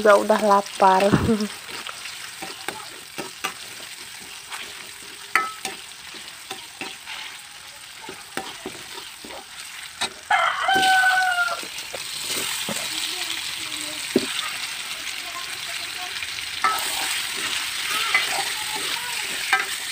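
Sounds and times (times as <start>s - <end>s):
light sizzle of frying: 0.0s - 19.9s
ladle scraping a wok: 1.0s - 13.1s, 16.4s - 19.9s
rooster crowing: 10.0s - 11.8s.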